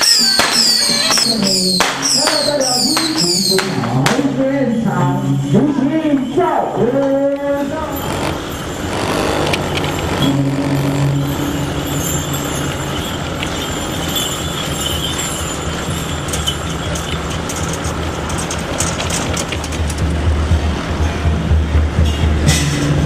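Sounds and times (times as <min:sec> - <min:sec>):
road traffic: 0:00.0 - 0:23.0
low engine hum: 0:07.4 - 0:23.0.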